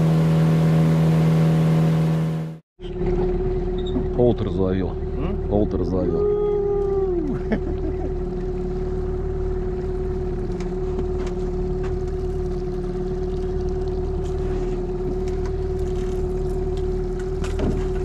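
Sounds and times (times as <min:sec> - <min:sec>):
outboard motor running: 0:00.0 - 0:18.0.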